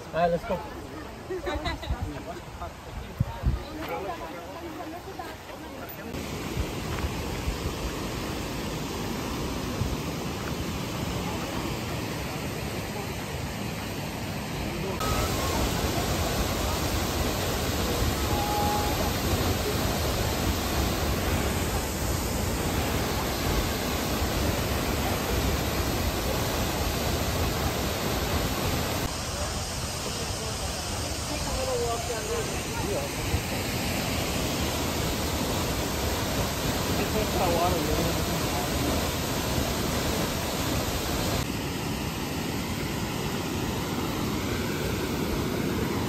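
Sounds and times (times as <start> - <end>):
waterfall rushing: 4.3 - 46.0.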